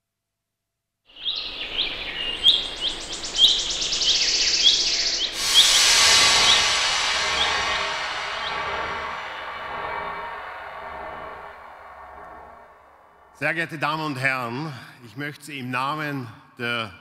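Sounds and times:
fast high bird trill: 0:01.2 - 0:09.0
rushing noise: 0:01.5 - 0:13.7.

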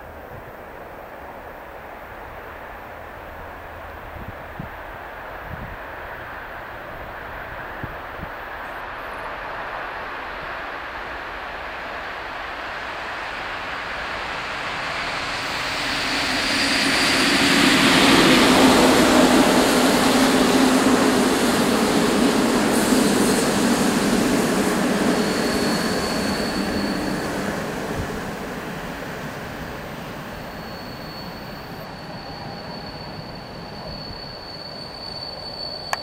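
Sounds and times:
passenger train passing: 0:00.0 - 0:36.0
faint high wheel squeal: 0:14.9 - 0:36.0.

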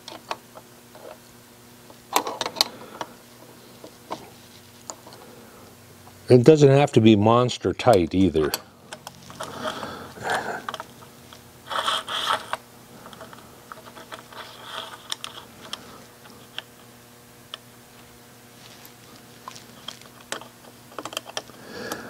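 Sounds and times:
faint steady hum: 0:00.0 - 0:22.0
metal clicks knocks and scrapes: 0:11.7 - 0:16.7, 0:19.4 - 0:21.6.

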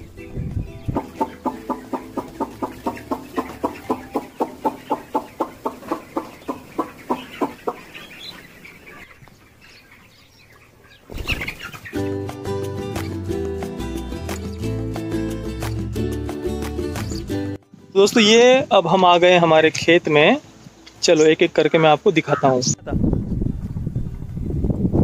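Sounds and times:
chicken clucking: 0:00.8 - 0:12.1.

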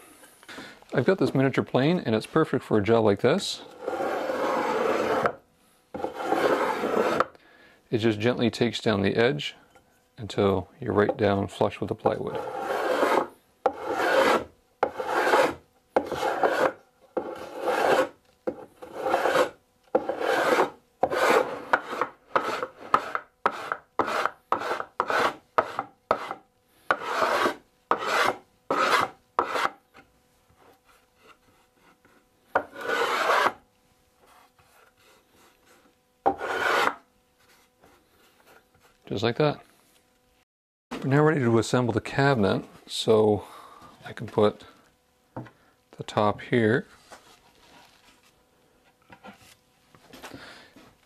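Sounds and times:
hand plane shaving strokes: 0:03.6 - 0:07.3, 0:12.3 - 0:29.8, 0:30.6 - 0:33.6, 0:34.2 - 0:38.6.

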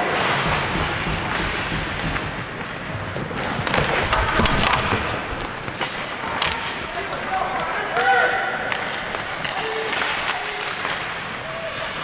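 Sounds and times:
skate blades scraping ice: 0:00.0 - 0:07.6
hockey sticks and puck clacking: 0:00.0 - 0:12.0.

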